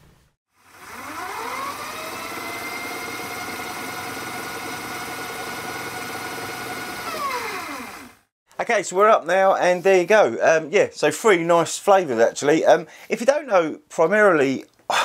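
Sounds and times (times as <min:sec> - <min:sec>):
fast-forward motor hum: 0:00.5 - 0:08.3.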